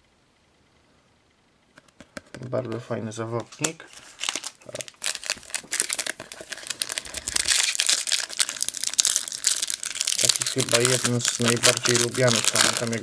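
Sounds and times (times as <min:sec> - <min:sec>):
foil wrapper crinkling and tearing: 0:03.6 - 0:13.0.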